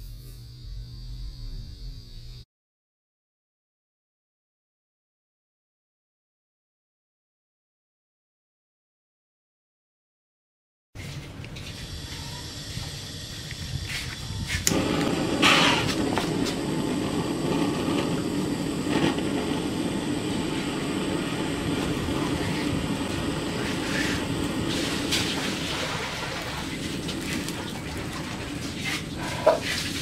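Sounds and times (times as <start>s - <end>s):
gas torch flame hissing: 11.5s - 30.0s
gas torch igniter clicks: 12.6s - 27.8s.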